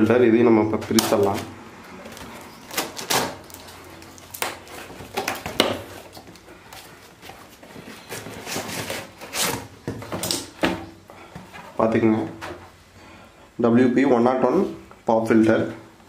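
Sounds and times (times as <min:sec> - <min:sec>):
cardboard box being torn: 0:00.9 - 0:06.4.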